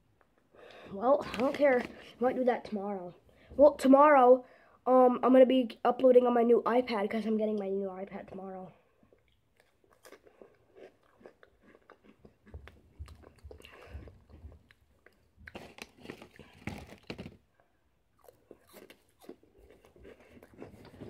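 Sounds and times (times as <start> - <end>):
person chewing crunchy snack: 9.1 - 17.4, 18.2 - 21.0.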